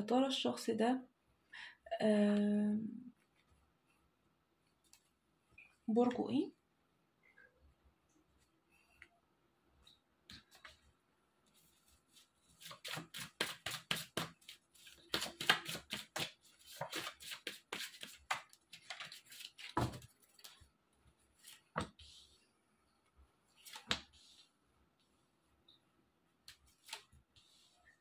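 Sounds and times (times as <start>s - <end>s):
cards being shuffled: 11.8s - 20.6s, 26.5s - 27.1s.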